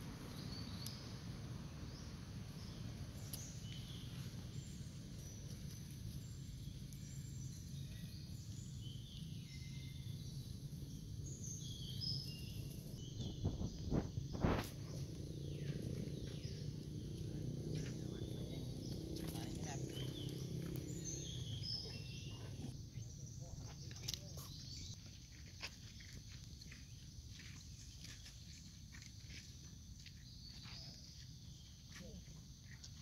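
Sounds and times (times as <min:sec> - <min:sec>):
steady low rumble: 0:12.1 - 0:22.8.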